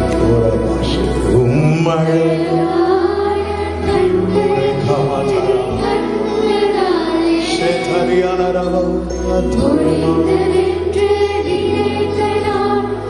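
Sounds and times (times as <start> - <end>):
man singing lead: 1.2 - 3.0, 4.0 - 6.2, 7.4 - 10.8
children's choir singing: 1.3 - 13.0.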